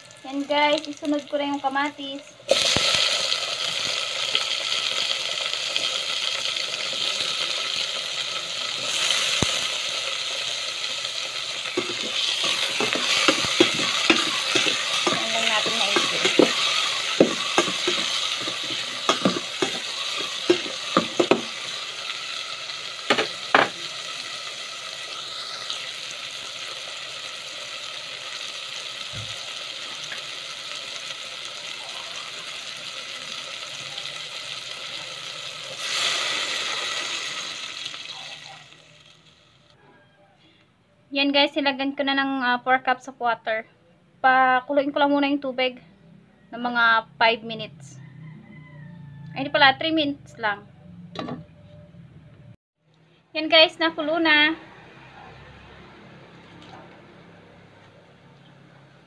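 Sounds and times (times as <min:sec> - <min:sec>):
vegetables sizzling in hot oil: 0:00.0 - 0:39.7
metal spoon scraping pot: 0:11.7 - 0:21.8.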